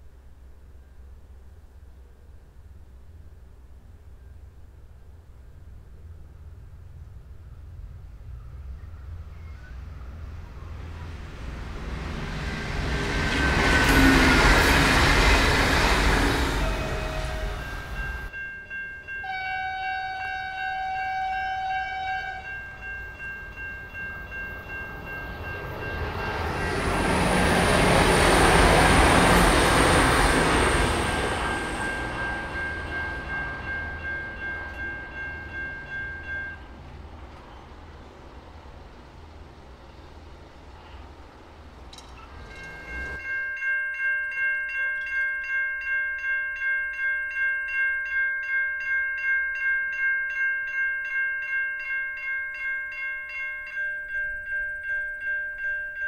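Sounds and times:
diesel railcar passing: 4.7 - 43.7
level crossing bells ringing: 11.9 - 36.9, 42.4 - 56.0
train horn: 16.2 - 18.3, 19.2 - 22.8.

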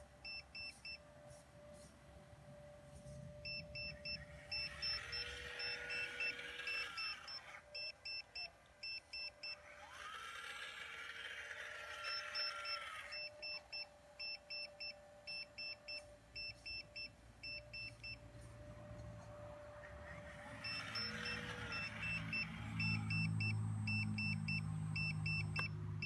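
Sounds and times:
electric pump and motors whining: 0.0 - 26.0
electronic beeper beeping: 3.4 - 9.6, 20.5 - 25.7.

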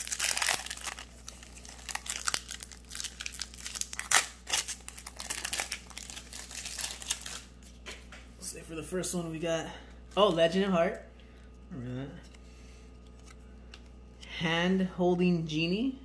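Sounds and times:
foil pack tearing and crinkling: 0.0 - 7.6.

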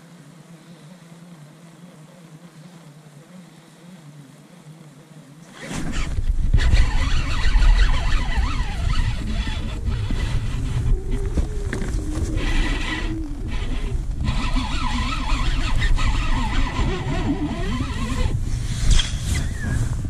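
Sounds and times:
wind buffeting microphone: 5.6 - 20.0.

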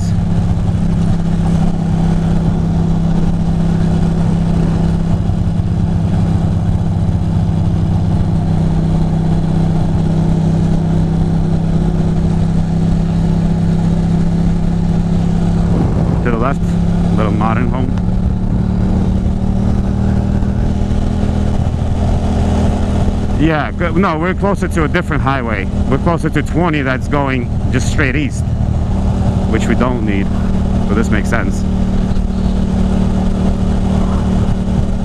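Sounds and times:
motorcycle engine cruising: 0.0 - 35.0
wind and road noise: 0.0 - 35.0.

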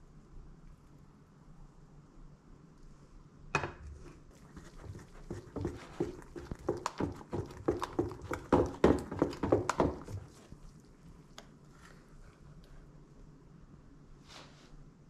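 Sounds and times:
whisking liquid in metal bowl: 4.0 - 10.7.

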